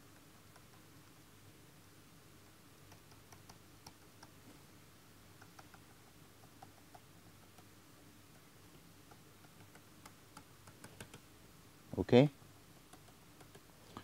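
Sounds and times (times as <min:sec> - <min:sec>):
stylus tapping on drawing tablet: 0:05.4 - 0:07.7, 0:09.0 - 0:11.2, 0:12.8 - 0:13.7.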